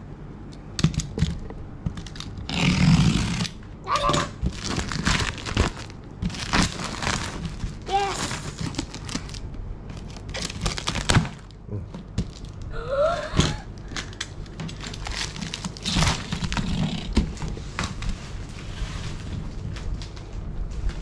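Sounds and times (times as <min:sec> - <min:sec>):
plastic wrapping rustling and crinkling: 0:04.3 - 0:12.7, 0:14.0 - 0:21.0.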